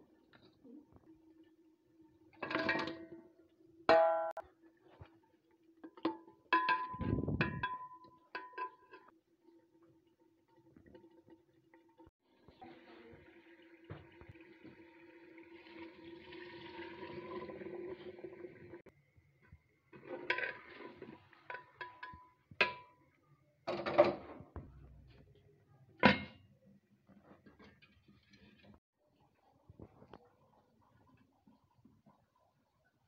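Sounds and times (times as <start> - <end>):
metal utensil clanking on pot: 2.4 - 3.2, 5.9 - 9.1, 21.5 - 23.0.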